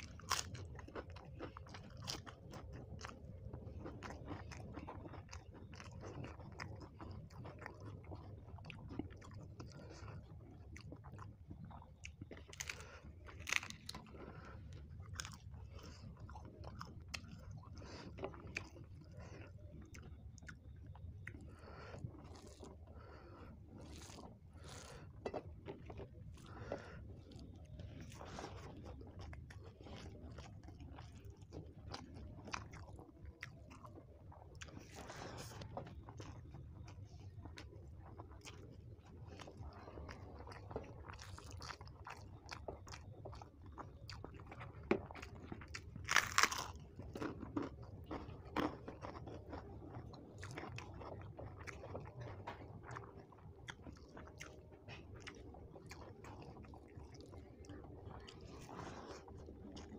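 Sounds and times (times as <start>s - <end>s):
chewing food: 0.0s - 59.9s
crisp crunches: 46.0s - 47.3s.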